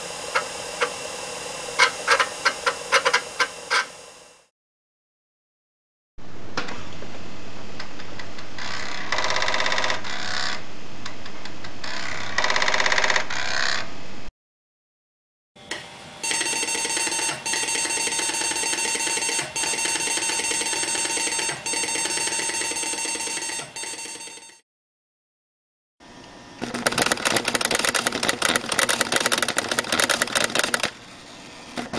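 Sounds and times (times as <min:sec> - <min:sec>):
disk drive buzzing tones: 0:00.0 - 0:04.4, 0:16.2 - 0:24.0, 0:26.1 - 0:31.9
floppy disk drive rattling: 0:26.6 - 0:31.1, 0:31.7 - 0:31.9.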